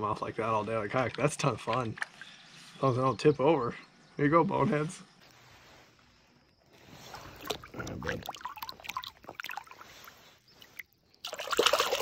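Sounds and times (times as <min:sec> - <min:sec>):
water splashing against a kayak: 0:06.7 - 0:12.0.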